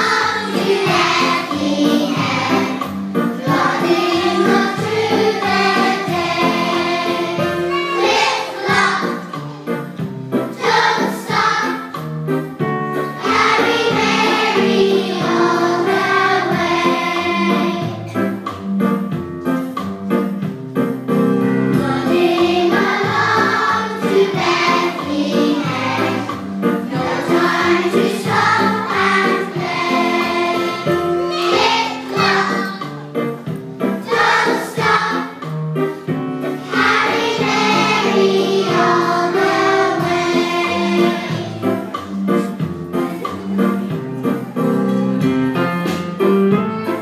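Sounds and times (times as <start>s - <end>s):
children's choir singing: 0.0s - 9.8s, 10.5s - 12.0s, 13.2s - 18.1s, 21.8s - 33.0s, 33.9s - 35.6s, 36.6s - 42.1s.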